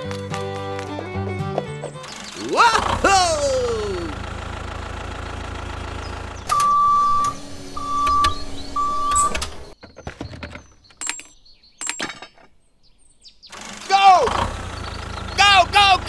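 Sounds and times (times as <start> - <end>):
short electronic beeps: 6.5 - 9.4
sharp clicks: 10.9 - 12.1.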